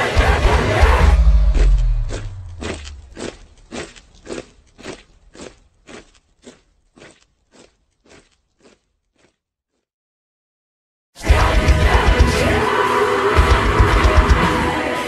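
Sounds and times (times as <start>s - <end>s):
metal track crunching: 0.0s - 9.2s.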